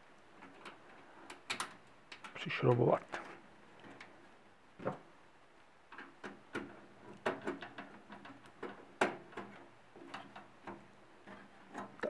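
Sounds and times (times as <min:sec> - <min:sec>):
screwdriver clicks and taps on metal: 0:00.4 - 0:02.9.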